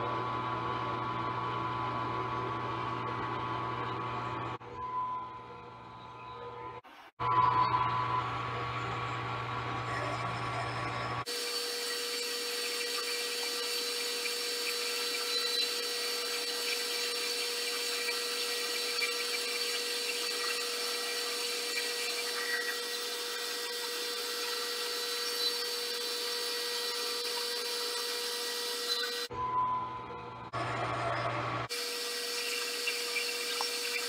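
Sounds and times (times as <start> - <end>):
milling machine spindle whine: 7.2 - 34.0
end mill cutting metal: 8.4 - 29.3, 30.6 - 34.0.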